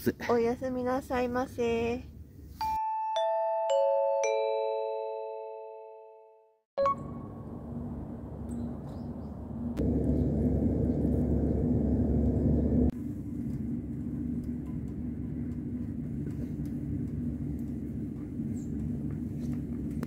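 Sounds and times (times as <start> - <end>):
faint hum: 6.8 - 20.0
steady low rumble: 7.2 - 20.0.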